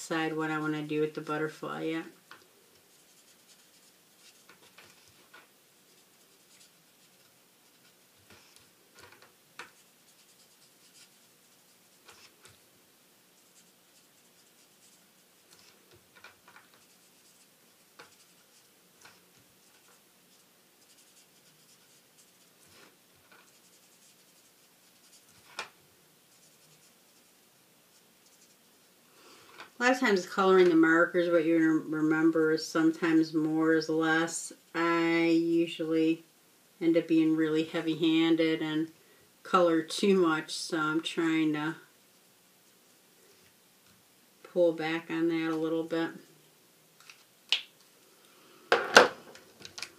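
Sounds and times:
marker scratching on cardstock: 0:02.9 - 0:05.2, 0:05.8 - 0:08.7, 0:09.6 - 0:12.5, 0:13.4 - 0:15.8, 0:16.6 - 0:25.5.

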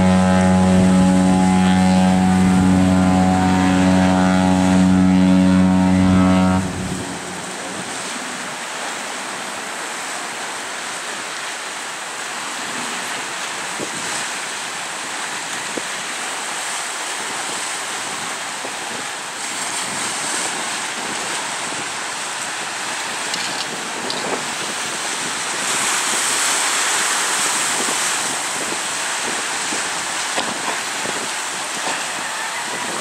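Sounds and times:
wind buffeting microphone: 0:00.0 - 0:08.6, 0:17.2 - 0:33.0
choppy water: 0:00.0 - 0:33.0.

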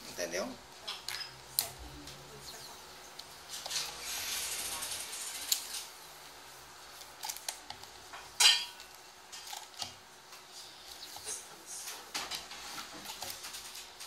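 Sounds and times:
tape peeling and stretching: 0:03.2 - 0:06.0, 0:06.8 - 0:07.9.

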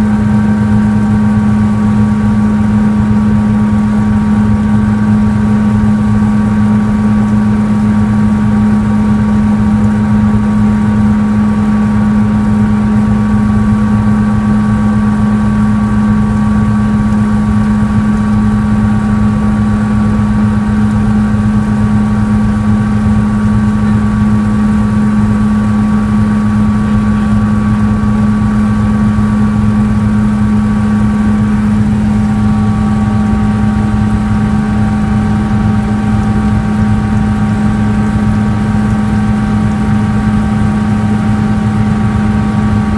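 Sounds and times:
helicopter cabin drone: 0:00.0 - 0:42.9
turbine and gearbox whine: 0:00.0 - 0:42.9
steady mid-pitched tone: 0:26.0 - 0:42.9.

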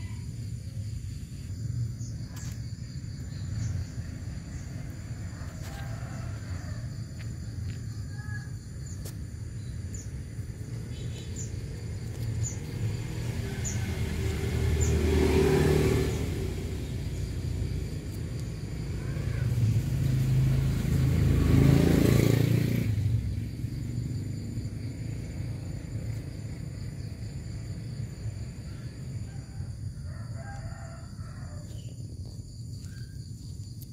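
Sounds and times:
vehicles passing: 0:00.0 - 0:33.9.

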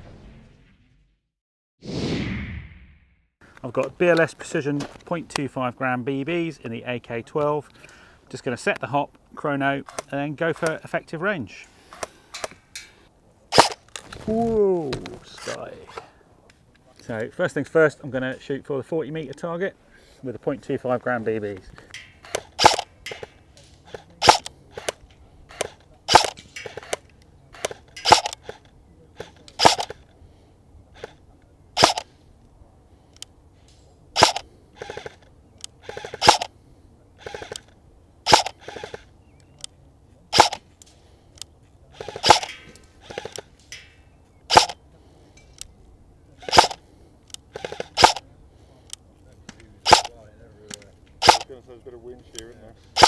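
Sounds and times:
airsoft rifle single shots: 0:13.5 - 0:13.8, 0:22.3 - 0:27.0, 0:27.6 - 0:28.6, 0:29.2 - 0:30.0, 0:31.8 - 0:32.0, 0:34.2 - 0:35.2, 0:35.8 - 0:36.5, 0:38.3 - 0:39.0, 0:40.3 - 0:40.6, 0:42.0 - 0:43.4, 0:44.5 - 0:44.8, 0:46.5 - 0:46.8, 0:47.6 - 0:48.2, 0:49.9 - 0:50.1, 0:51.2 - 0:51.5.

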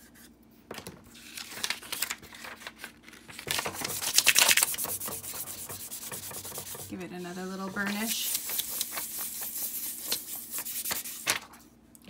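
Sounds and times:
plastic sheet crinkling: 0:01.1 - 0:05.3, 0:07.7 - 0:11.6.

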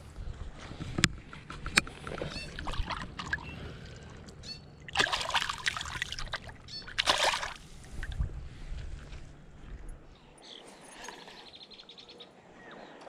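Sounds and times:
fish splashing in water: 0:02.0 - 0:08.1.

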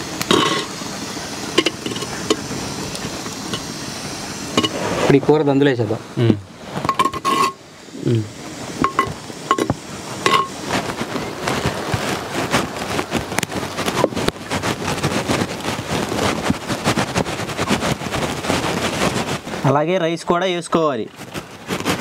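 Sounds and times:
curry scraping out of a pan: 0:00.0 - 0:03.8, 0:04.4 - 0:05.2, 0:06.6 - 0:07.6, 0:08.8 - 0:10.9
spoon clinking against pot: 0:08.8 - 0:10.5.

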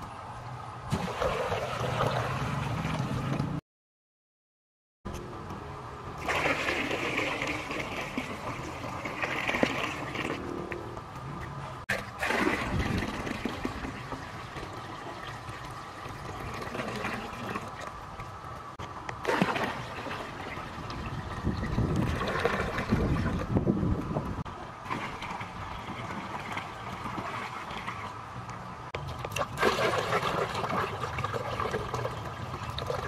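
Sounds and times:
water pouring and splashing: 0:00.9 - 0:03.6, 0:06.2 - 0:10.6, 0:11.9 - 0:33.0.

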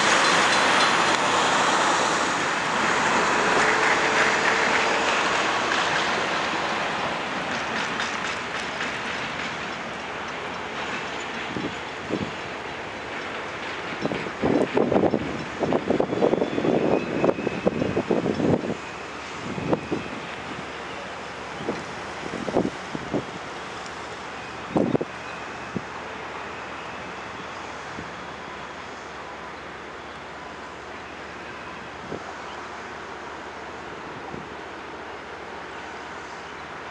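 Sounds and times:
freight train rumbling on rails: 0:00.0 - 0:36.9
faint rail clicks: 0:03.7 - 0:16.3, 0:23.7 - 0:24.4
wind on microphone: 0:13.9 - 0:20.8, 0:21.5 - 0:23.6.

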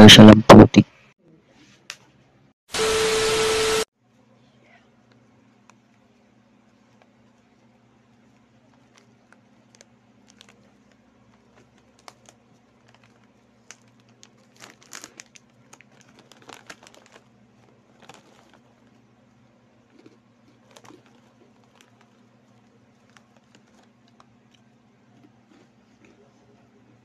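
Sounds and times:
faint low hum: 0:04.0 - 0:27.0
plastic snack bag crinkling: 0:08.0 - 0:26.2.

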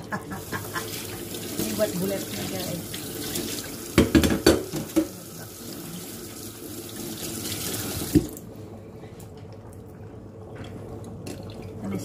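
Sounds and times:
water running from a tap: 0:00.0 - 0:08.5.

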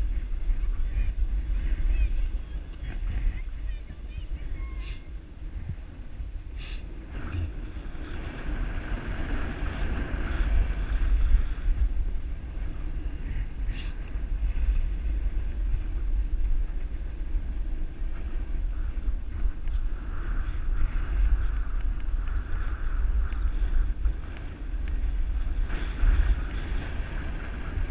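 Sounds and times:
wind rumbling on microphone: 0:00.0 - 0:27.9
skis sliding on snow: 0:06.6 - 0:27.9.

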